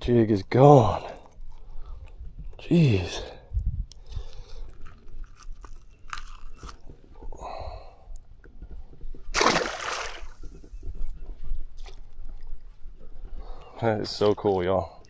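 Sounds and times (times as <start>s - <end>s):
clicks and rustling handling fish: 3.9s - 7.4s, 10.1s - 14.7s
fish splashing into water: 9.3s - 10.4s.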